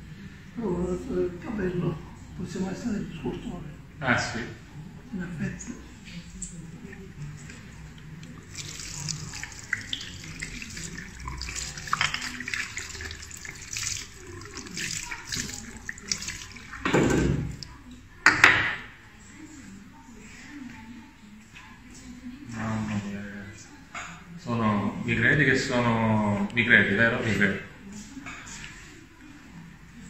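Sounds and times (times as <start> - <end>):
hands rinsing under water: 6.8 - 17.8
tap water running into basin: 6.8 - 17.8.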